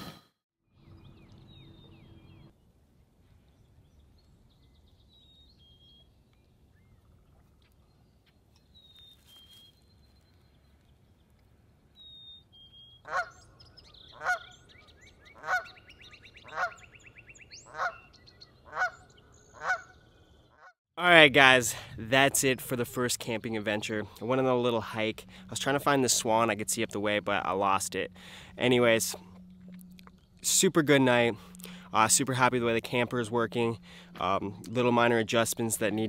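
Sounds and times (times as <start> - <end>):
geese honking: 13.0 - 13.5, 14.1 - 14.6, 15.3 - 20.0.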